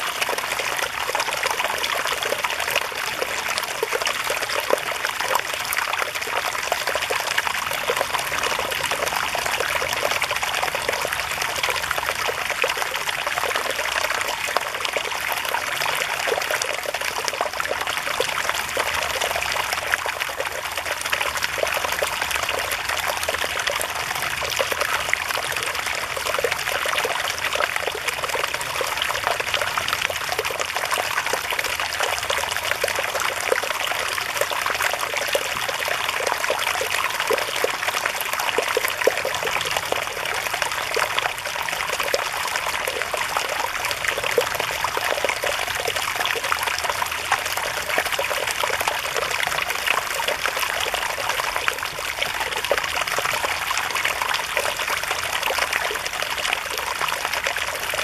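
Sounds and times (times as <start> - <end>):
stream trickling and splashing: 0.0 - 58.0.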